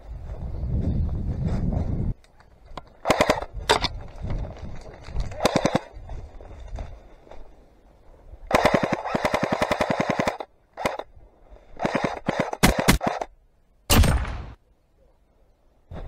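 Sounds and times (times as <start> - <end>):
airsoft rifle firing full auto: 8.5 - 11.0.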